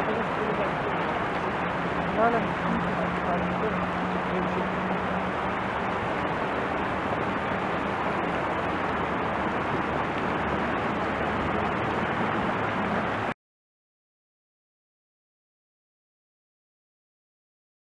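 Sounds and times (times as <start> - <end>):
floodwater rushing: 0.0 - 13.4.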